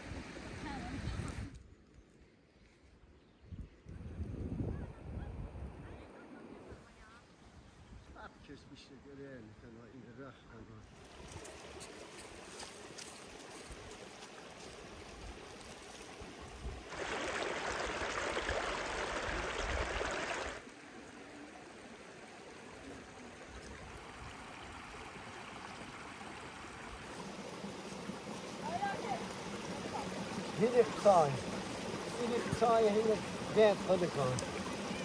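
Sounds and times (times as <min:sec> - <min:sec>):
stream running over rocks: 0:10.8 - 0:35.0
small cascade splashing: 0:11.0 - 0:20.8.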